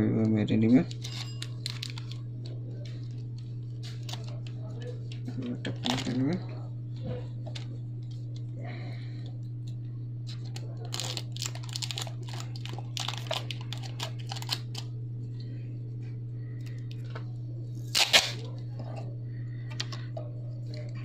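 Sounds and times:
steady low hum: 0.0s - 21.0s
tape crinkling: 0.8s - 6.4s, 10.2s - 15.0s.

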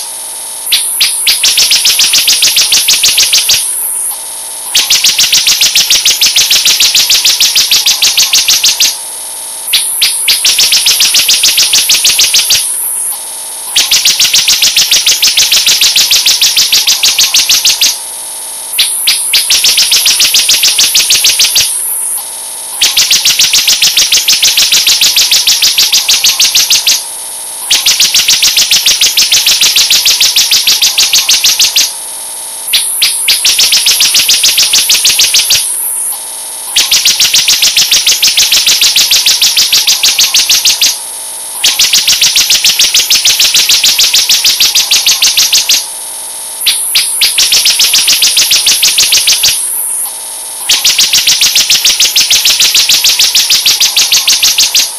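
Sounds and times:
bird song high-pitched trills: 0.0s - 9.0s, 9.7s - 13.1s, 13.8s - 18.0s, 18.7s - 22.2s, 22.8s - 27.1s, 27.7s - 31.9s, 32.7s - 36.1s, 36.8s - 41.0s, 41.6s - 45.9s, 46.6s - 50.1s, 50.7s - 54.9s
constant high hiss: 18.4s - 40.6s, 41.2s - 53.6s.

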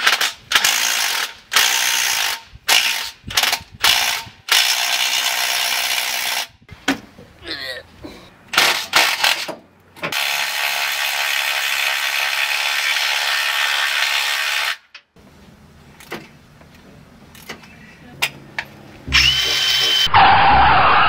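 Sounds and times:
power tool running: 19.1s - 20.1s.

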